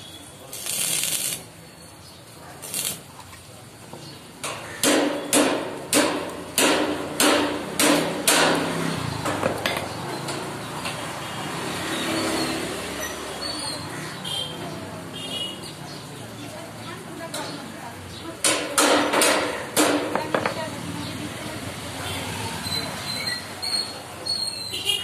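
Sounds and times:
hammer striking steel frame: 0:04.4 - 0:11.0, 0:18.4 - 0:20.5.

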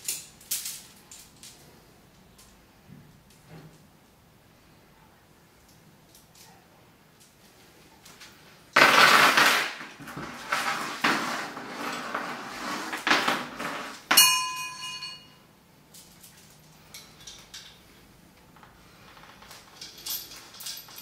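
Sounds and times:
steel chain rattling: 0:13.4 - 0:15.4, 0:18.9 - 0:21.0
sharp metallic clank: 0:14.1 - 0:15.4.

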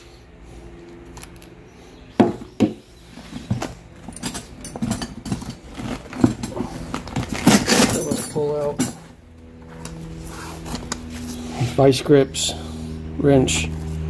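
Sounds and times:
tools knocking and clinking: 0:04.0 - 0:06.6.

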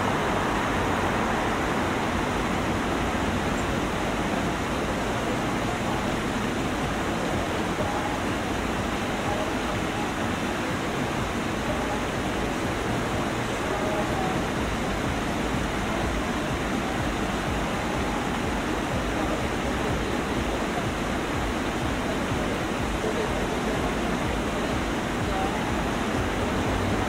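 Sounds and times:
crowd noise: 0:00.0 - 0:27.0
traffic noise: 0:00.0 - 0:27.0.

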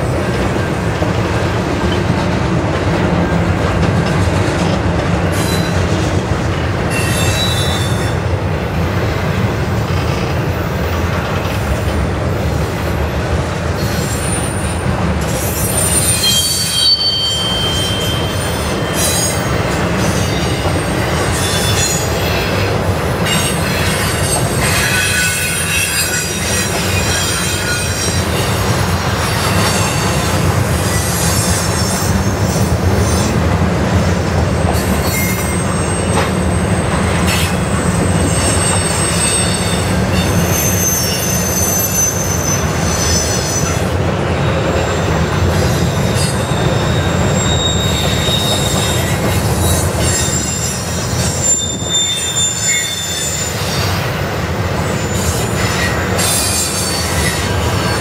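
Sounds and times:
freight train wheels rumbling: 0:00.0 - 0:58.0
high-pitched wheel squeals: 0:06.9 - 0:08.2, 0:15.4 - 0:22.4, 0:34.7 - 0:43.8, 0:45.8 - 0:54.0.

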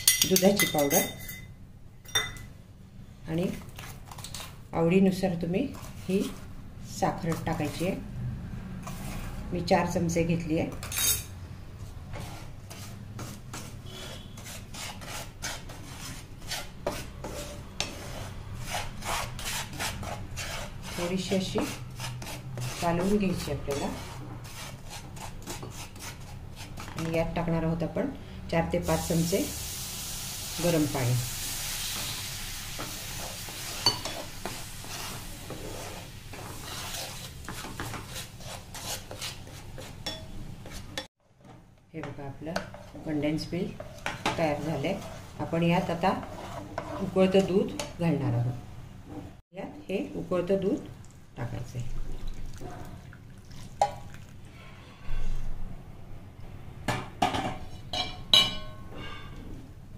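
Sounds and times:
wooden spatula scraping a pan: 0:03.7 - 0:04.6, 0:05.6 - 0:08.0, 0:08.8 - 0:09.5, 0:11.8 - 0:27.1, 0:31.0 - 0:41.5, 0:42.5 - 0:48.0
sizzling hiss: 0:28.9 - 0:36.3.

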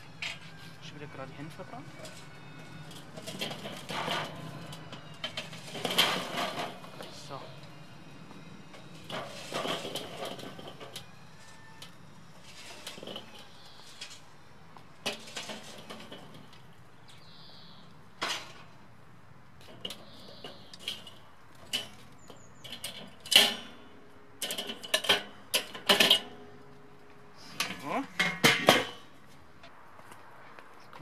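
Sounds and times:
metal clanks and knocks: 0:00.0 - 0:14.2, 0:15.0 - 0:17.4, 0:18.2 - 0:18.8, 0:19.6 - 0:29.3
charcoal clattering onto grill grate: 0:01.6 - 0:07.6, 0:08.7 - 0:14.3, 0:14.9 - 0:17.5, 0:18.2 - 0:18.7, 0:19.6 - 0:26.7, 0:27.4 - 0:29.2.

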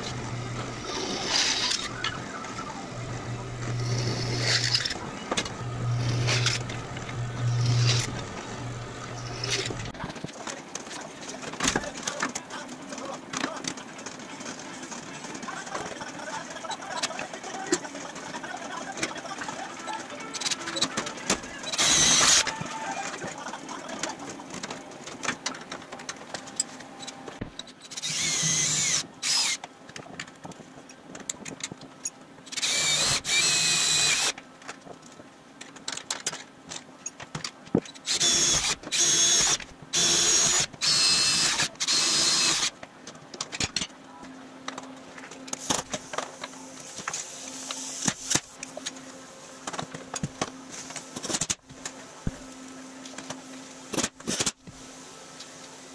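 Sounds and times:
cordless drill boring through metal: 0:00.0 - 0:02.2, 0:02.9 - 0:09.9, 0:21.7 - 0:22.5, 0:27.9 - 0:29.6, 0:32.6 - 0:34.4, 0:38.1 - 0:42.7.

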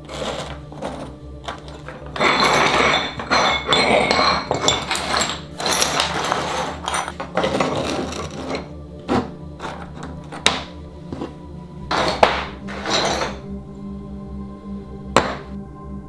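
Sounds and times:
tile pieces clinking on wood: 0:00.1 - 0:10.6, 0:11.9 - 0:13.4.

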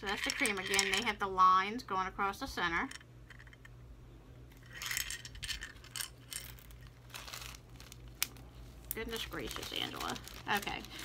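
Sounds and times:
glass beads clicking on plastic: 0:00.0 - 0:01.1
plastic bags crinkling: 0:04.6 - 0:11.0.

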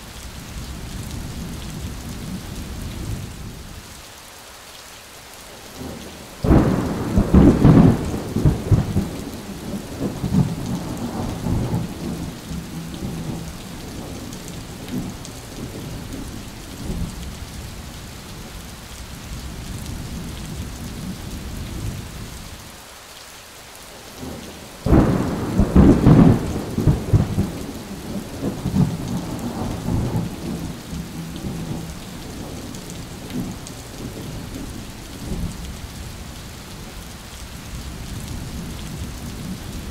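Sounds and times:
heavy rain: 0:00.0 - 0:39.9
thunder claps rumbling: 0:05.8 - 0:17.1, 0:24.9 - 0:35.7.

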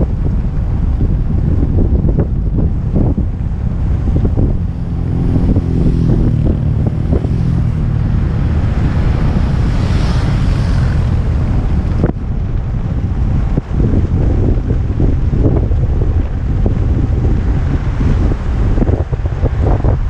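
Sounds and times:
wind buffeting microphone: 0:00.0 - 0:20.0
motorcycle engine passing: 0:03.0 - 0:13.1.

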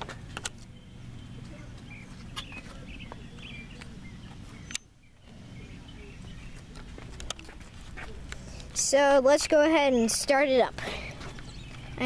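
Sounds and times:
birds chirping: 0:00.0 - 0:12.0
low steady rumble: 0:00.0 - 0:12.0.

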